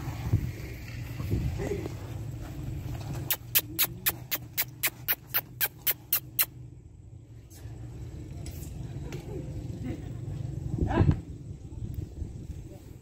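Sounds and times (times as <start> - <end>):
rapid clicking chirps: 3.3 - 6.5.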